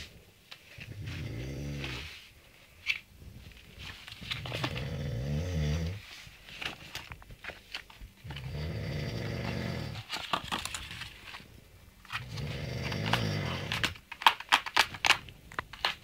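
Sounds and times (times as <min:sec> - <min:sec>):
ferret snoring: 0:00.8 - 0:02.2, 0:04.4 - 0:06.0, 0:08.2 - 0:10.1, 0:12.2 - 0:14.0.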